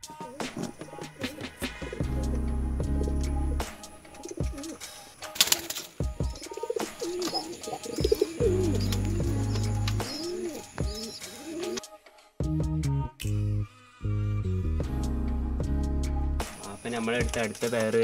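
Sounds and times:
pigeons cooing: 0.0 - 11.8
background music with heavy bass: 0.0 - 17.4
sharp noises: 3.0 - 11.8.

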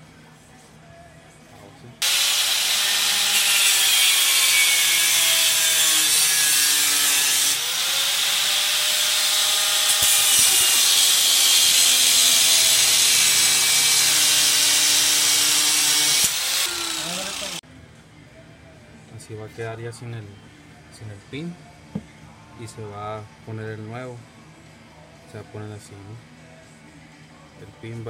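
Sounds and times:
angle grinder grinding steel: 2.0 - 17.6.

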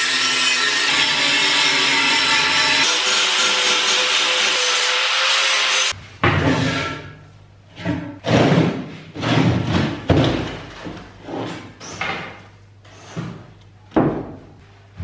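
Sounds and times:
angle grinder grinding steel: 0.0 - 6.0.

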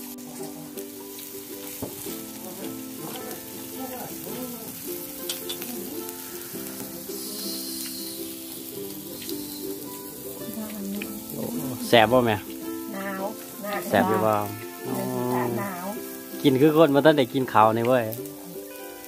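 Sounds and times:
faint held musical tones: 0.0 - 19.0
meat sizzling on grill pan: 0.0 - 19.0.

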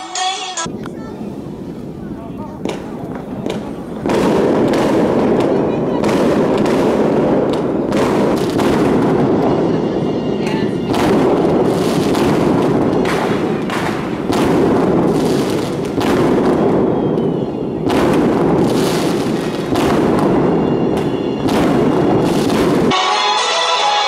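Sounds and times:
television music: 0.0 - 0.7, 22.9 - 24.0
fireworks crackling and booming: 0.6 - 23.1.

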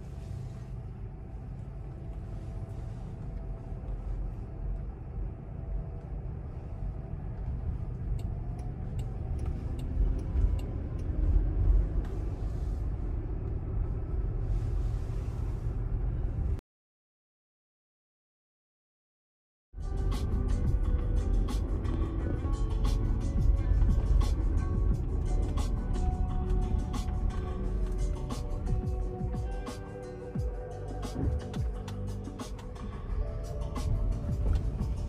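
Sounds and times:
tyre rumble inside car: 33.8 - 35.0.

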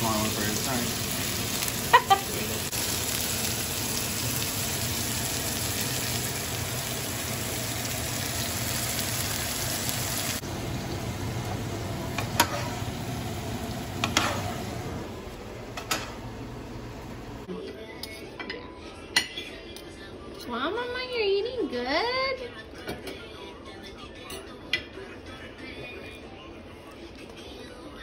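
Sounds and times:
steak sizzling in butter: 0.0 - 14.9.

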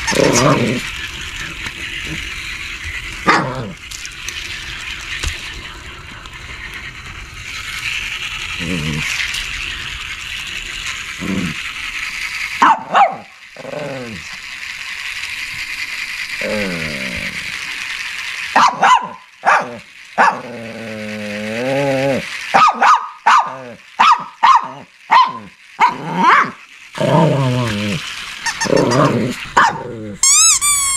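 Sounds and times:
dog whining: 0.0 - 0.9, 27.3 - 30.9
dog barking: 12.6 - 13.3, 18.6 - 20.4, 22.6 - 26.6, 29.6 - 29.9.

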